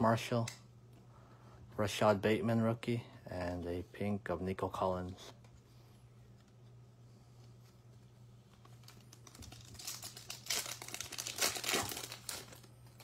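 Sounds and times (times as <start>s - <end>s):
foil wrapper tearing and crinkling: 8.7s - 13.0s.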